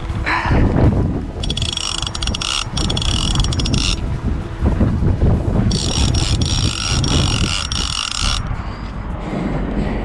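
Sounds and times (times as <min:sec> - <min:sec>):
wind buffeting microphone: 0:00.0 - 0:10.0
fishing reel drag buzzing: 0:01.4 - 0:04.0, 0:05.7 - 0:08.9.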